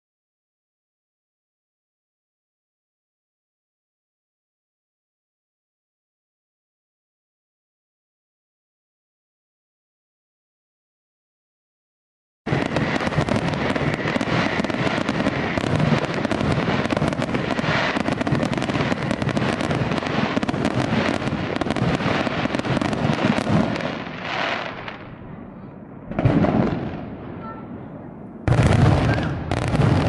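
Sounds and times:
fireworks bursting and crackling: 12.5s - 30.0s.

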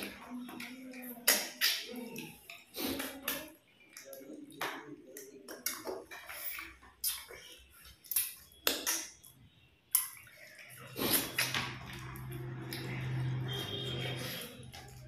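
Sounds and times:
chewing and lip-smacking: 0.0s - 15.0s
fingers mixing wet food: 0.0s - 15.0s.

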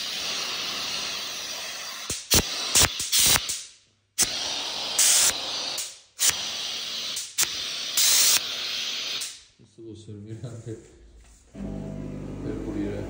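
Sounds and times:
steam cleaner hissing: 0.0s - 9.4s.

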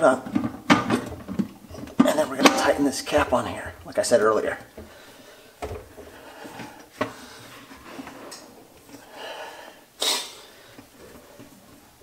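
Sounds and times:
sharp burst of breath: 9.1s - 10.7s.

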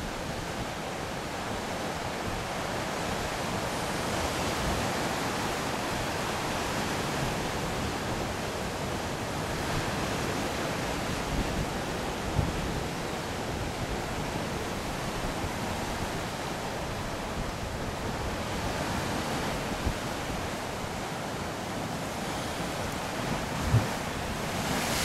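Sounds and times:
ocean surf washing up beach: 0.0s - 25.0s.

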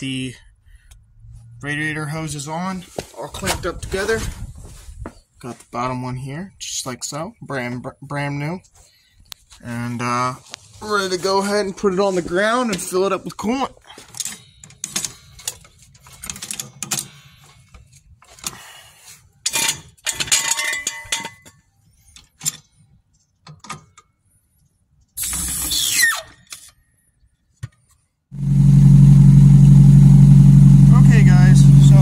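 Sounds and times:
car engine running: 28.4s - 32.0s.

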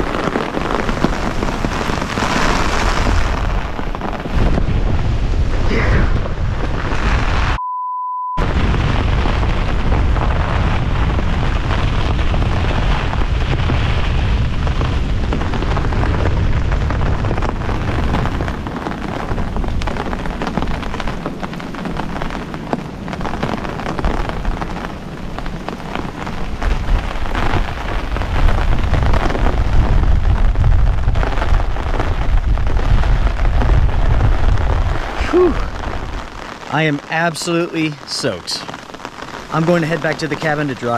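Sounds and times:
deep wind rumble: 0.0s - 7.6s, 8.4s - 36.8s
gusting wind: 0.0s - 7.6s, 8.4s - 40.9s
heavy rain on tent: 0.0s - 7.6s, 8.4s - 40.9s
tent fabric flapping: 0.0s - 7.6s.

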